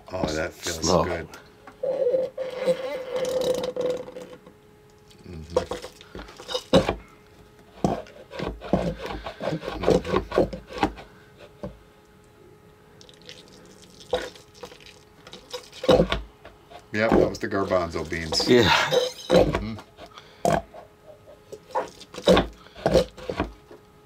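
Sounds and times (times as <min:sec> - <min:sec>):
slime fart noises: 0:02.4 - 0:04.4.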